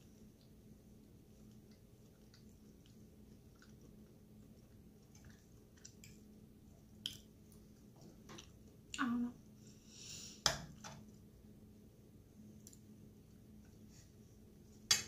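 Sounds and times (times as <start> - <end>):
soft chewing: 0.0 - 9.6.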